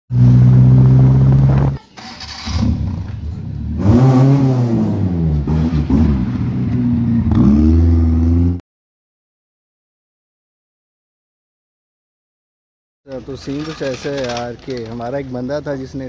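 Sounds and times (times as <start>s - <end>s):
car engine running and revving: 0.1s - 1.8s, 2.5s - 8.6s.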